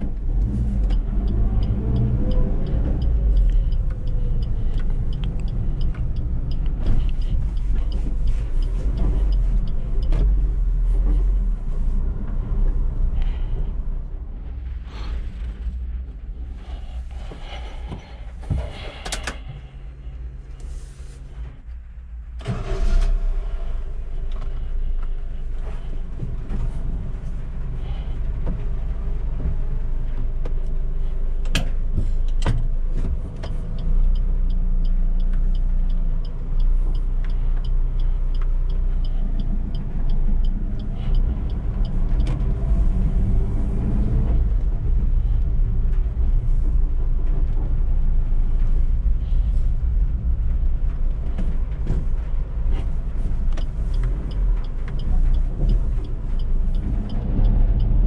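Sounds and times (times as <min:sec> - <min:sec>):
road noise rumble: 0:00.0 - 0:58.0
van engine running: 0:00.0 - 0:58.0
fast regular ticking: 0:00.8 - 0:11.7, 0:33.7 - 0:43.7, 0:44.4 - 0:58.0.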